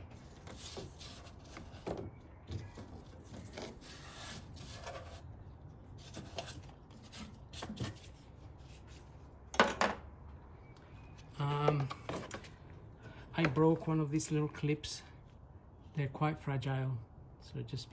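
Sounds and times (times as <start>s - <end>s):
plastic trim rubbing and rustling: 0.0s - 5.3s.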